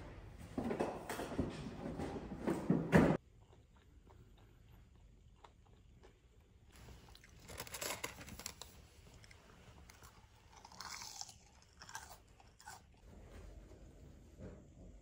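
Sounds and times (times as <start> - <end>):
crunchy chewing: 3.2 - 13.0.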